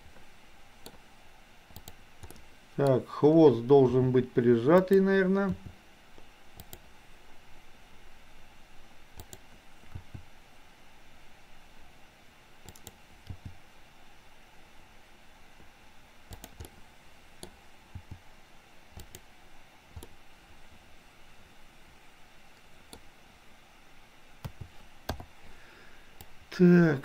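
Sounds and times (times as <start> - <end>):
faint steady hiss: 0.0 - 27.0
keyboard and mouse clicks: 1.7 - 3.0, 4.7 - 6.9, 9.2 - 10.3, 12.6 - 13.6, 16.3 - 16.8, 17.4 - 18.2, 19.0 - 19.3, 19.9 - 20.2, 24.4 - 25.3.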